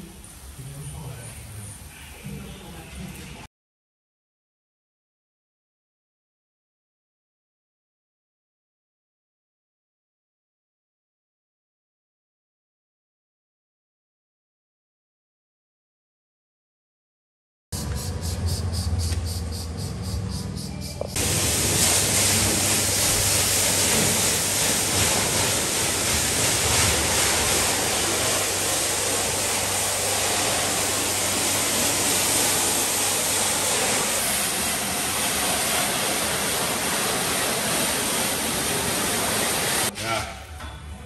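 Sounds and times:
pressure washer spraying: 17.8s - 39.9s.

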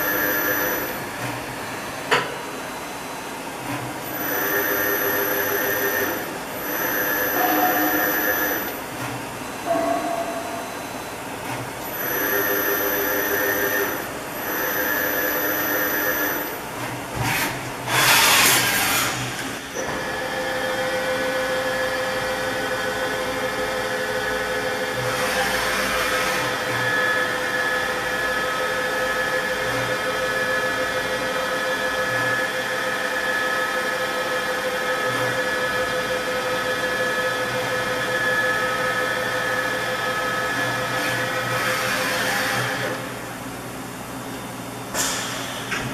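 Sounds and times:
machine spindle whining: 0.0s - 1.3s, 4.0s - 9.0s, 9.6s - 16.7s.

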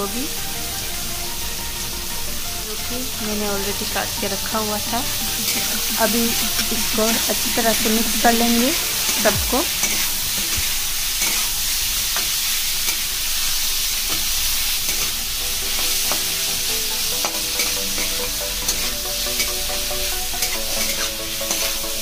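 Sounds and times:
vegetables sizzling in a pan: 0.0s - 22.0s
metal spatula scraping a pan: 5.1s - 22.0s.

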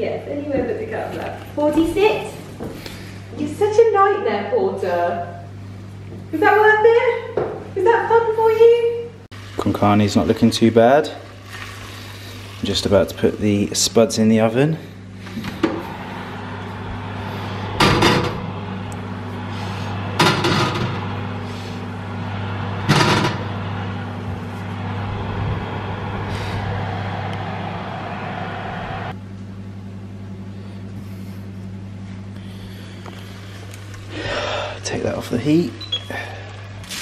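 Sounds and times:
kitchen hum and rush: 0.0s - 37.0s
oven door shutting: 15.2s - 18.9s, 19.6s - 21.7s, 22.6s - 24.4s.

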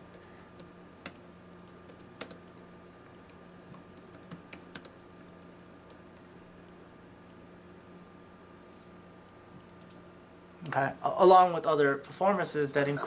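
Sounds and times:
faint steady hum: 0.0s - 13.0s
typing on computer keyboard: 0.1s - 6.3s.

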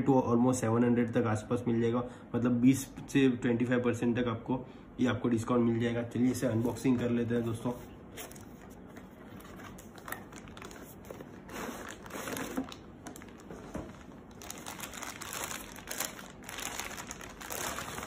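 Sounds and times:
plastic bag crinkling: 8.2s - 18.0s.

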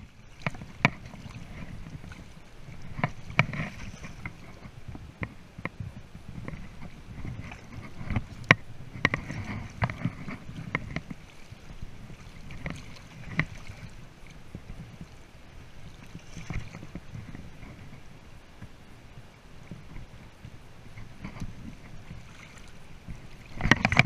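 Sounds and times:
water sloshing around net: 0.0s - 4.8s, 6.3s - 18.1s, 20.9s - 24.0s
sharp splashes and knocks: 0.0s - 5.4s, 6.4s - 14.4s, 15.9s - 17.5s, 20.9s - 24.0s.

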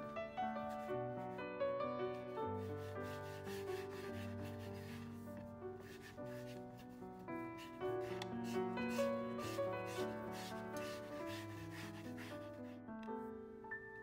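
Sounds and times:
piano music: 0.0s - 14.0s
dough rubbing on wooden board: 2.6s - 7.0s, 7.6s - 12.7s.

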